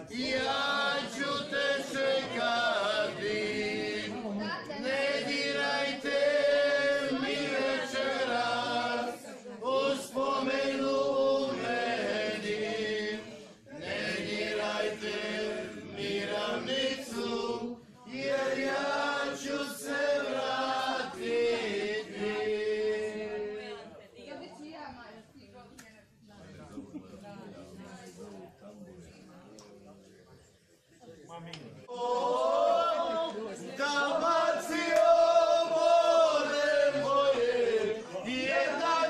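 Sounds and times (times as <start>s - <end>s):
group of people singing: 0.0s - 24.0s, 31.8s - 39.0s.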